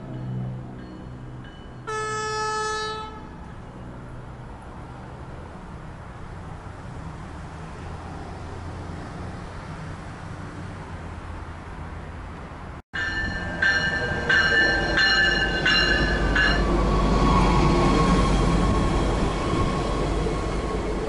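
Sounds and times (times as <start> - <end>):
train bell ringing: 0.0 - 4.0, 13.0 - 19.8
train engine rumble: 0.0 - 21.0.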